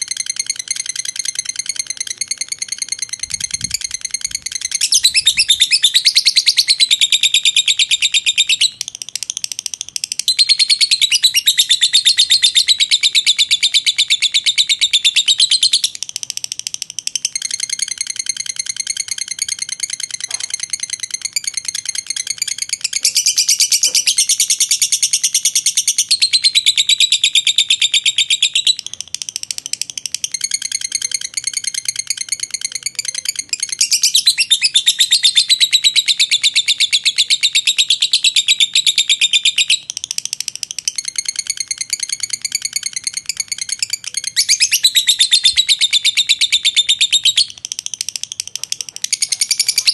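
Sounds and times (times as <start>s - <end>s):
bird rattling chatter: 0.0s - 6.2s, 28.7s - 34.4s, 39.9s - 45.2s, 46.6s - 49.9s.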